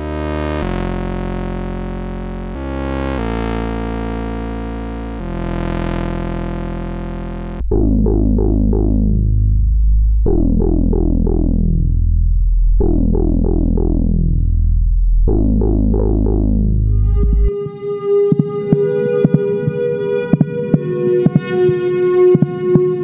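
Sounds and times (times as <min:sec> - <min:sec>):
buzzy synthesizer tone: 0:00.0 - 0:23.0
plucked synth bass line: 0:05.6 - 0:23.0
deep sustained bass note: 0:05.8 - 0:17.5.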